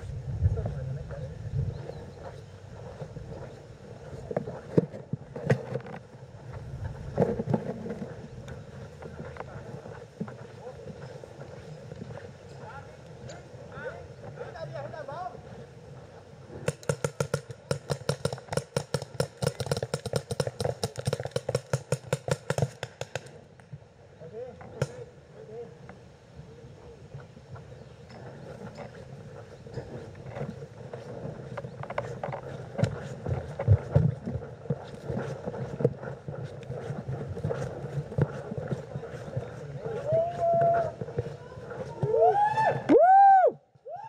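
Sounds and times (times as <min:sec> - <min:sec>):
wind buffeting microphone: 0:00.0 - 0:04.6
footsteps through long grass: 0:00.0 - 0:16.5, 0:27.1 - 0:42.4
footsteps on wooden footbridge: 0:01.9 - 0:12.8, 0:27.2 - 0:42.3
paintball markers firing rapidly: 0:16.6 - 0:23.4.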